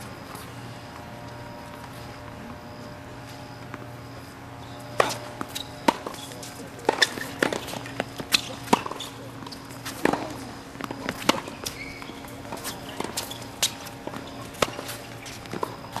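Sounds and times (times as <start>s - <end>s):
balls bouncing on a hard court: 4.8s - 16.0s
tennis balls struck by rackets: 4.8s - 16.0s.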